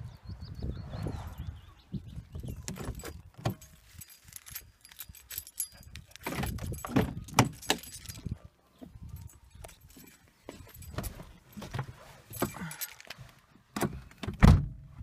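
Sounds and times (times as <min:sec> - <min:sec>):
car keys jangling: 0:02.3 - 0:13.4.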